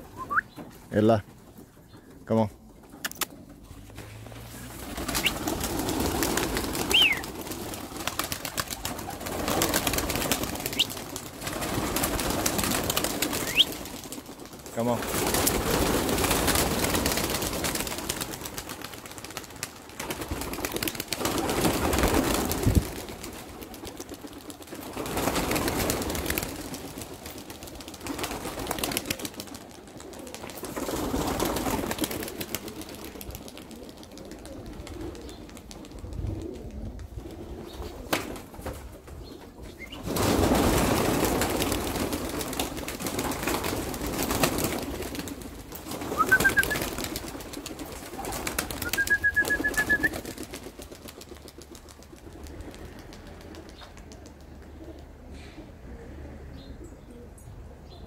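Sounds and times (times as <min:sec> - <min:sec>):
pigeon wings flapping: 0:01.4 - 0:55.2.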